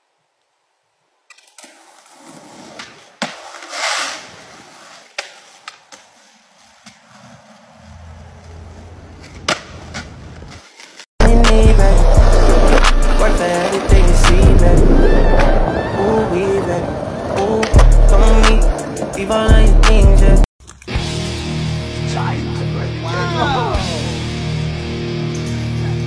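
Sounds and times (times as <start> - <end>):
skateboard wheels rolling on concrete: 0.1 - 20.4
skateboard scraping slide: 1.3 - 11.1, 12.0 - 19.3
skateboard clacks: 4.8 - 11.6, 17.2 - 20.0
loud beat-driven music: 11.2 - 15.0, 17.8 - 20.4.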